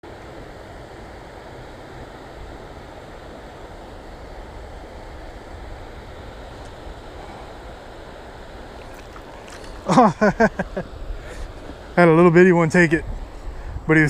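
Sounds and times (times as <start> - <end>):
shallow river running over rocks: 0.2 - 12.3
wind rumble on microphone: 12.8 - 14.0.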